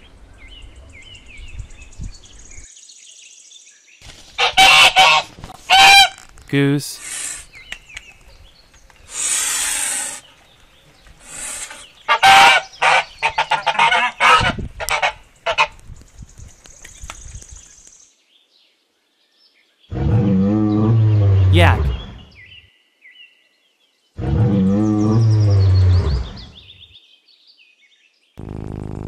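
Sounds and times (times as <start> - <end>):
goose honking: 4.4 - 6.2, 12.1 - 15.7
breathy noisy sounds: 6.8 - 7.6, 11.2 - 11.9, 28.4 - 29.0
yak grunting: 19.9 - 22.3.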